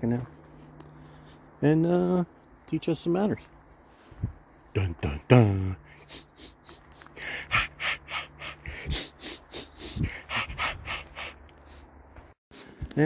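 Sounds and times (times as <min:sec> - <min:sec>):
footsteps on gravel: 0:00.0 - 0:05.2.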